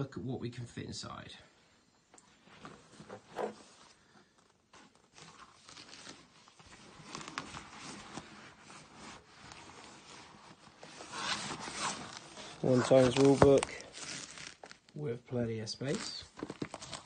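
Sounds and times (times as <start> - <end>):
nylon fabric rustling: 2.3 - 15.0.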